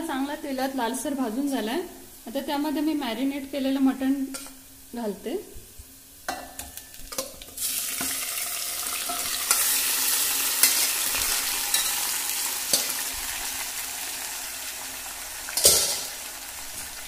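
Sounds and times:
meat sizzling in hot oil: 6.0 - 17.0.

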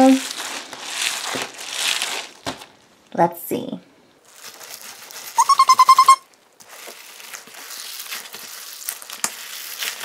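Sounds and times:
beads crackling and squelching: 0.0 - 3.1, 4.2 - 5.8, 6.5 - 10.0
rubber ball squeaking: 5.4 - 6.2.

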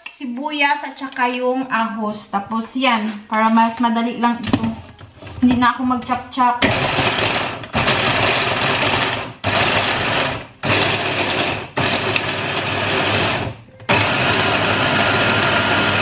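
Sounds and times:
hand blender chopping vegetables: 6.6 - 16.0.

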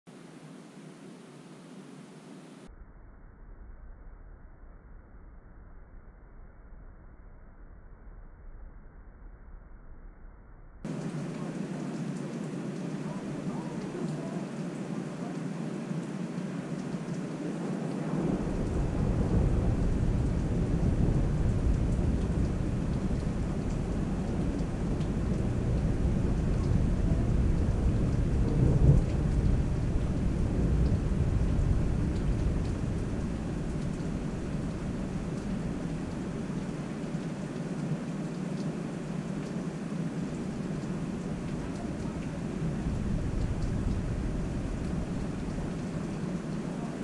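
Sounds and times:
rain falling: 10.9 - 47.0
thunder rolling: 16.9 - 37.4, 40.4 - 47.0.

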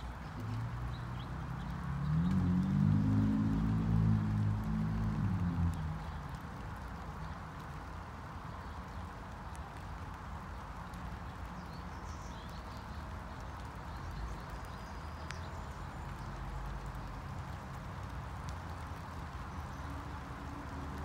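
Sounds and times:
rain falling on lawn: 0.0 - 21.0.

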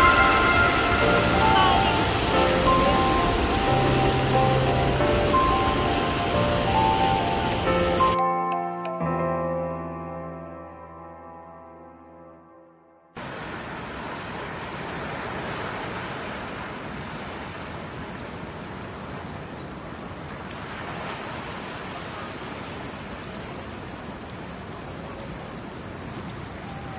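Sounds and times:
ocean surf over rocks: 0.0 - 8.2, 13.2 - 26.9.

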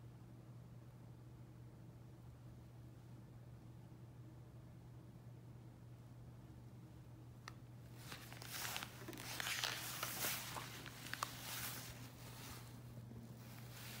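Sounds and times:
paper rustling and sliding: 7.9 - 14.0.

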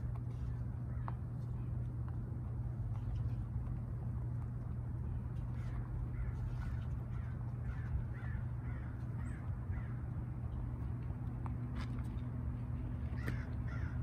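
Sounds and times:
steady low hum: 0.0 - 14.0
crow cawing: 5.6 - 10.0, 13.2 - 14.0.

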